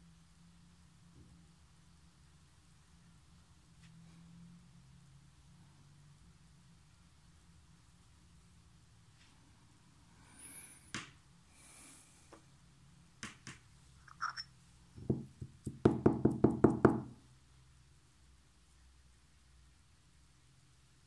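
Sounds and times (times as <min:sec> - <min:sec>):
knocks on a hard surface: 0:15.0 - 0:17.2.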